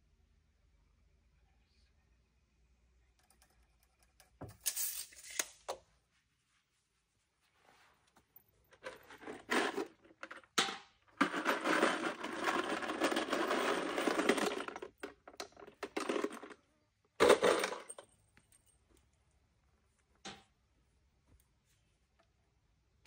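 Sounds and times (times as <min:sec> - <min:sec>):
screws rattling in plastic bag: 0:11.2 - 0:16.6.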